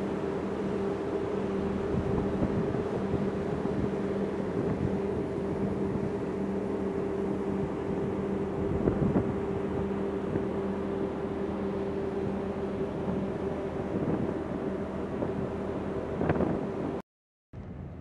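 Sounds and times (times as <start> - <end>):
ferry engines humming: 0.0 - 17.0
wind noise on microphone: 1.5 - 6.7, 7.3 - 10.7, 12.0 - 17.0, 17.6 - 18.0.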